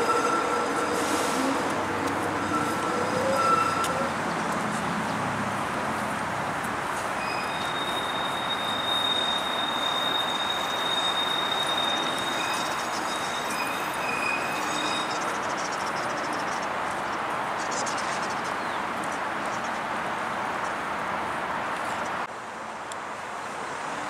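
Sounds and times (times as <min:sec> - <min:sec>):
lower wheel squeal: 0:00.0 - 0:04.2, 0:07.2 - 0:15.6
streetcar wheels squealing on rails: 0:00.0 - 0:04.8, 0:07.0 - 0:16.8.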